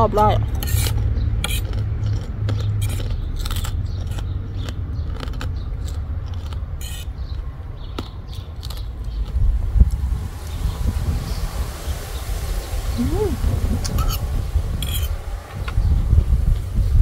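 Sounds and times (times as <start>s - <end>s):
low steady rumble: 0.0s - 17.0s
fork scraping a plate: 0.5s - 2.2s, 2.8s - 4.3s, 6.3s - 7.2s, 14.8s - 15.2s.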